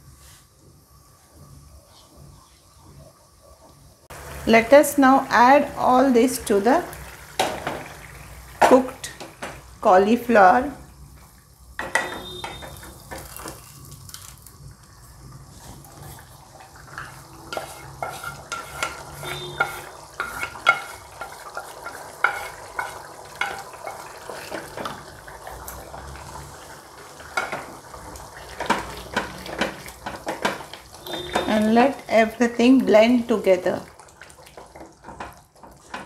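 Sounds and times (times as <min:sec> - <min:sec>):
low sizzle: 0:00.0 - 0:36.0
knocks against pans: 0:11.8 - 0:13.3, 0:28.6 - 0:31.6
wooden spatula scraping pan: 0:17.0 - 0:24.9.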